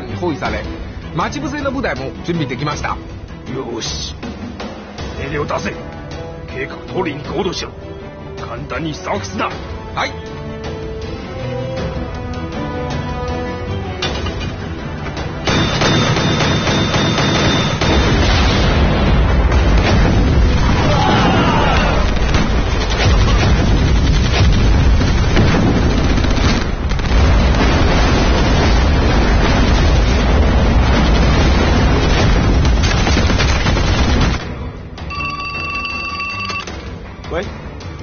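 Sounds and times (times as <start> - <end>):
artillery shells bursting: 22.0 - 34.5
old telephone ringing: 35.1 - 36.7.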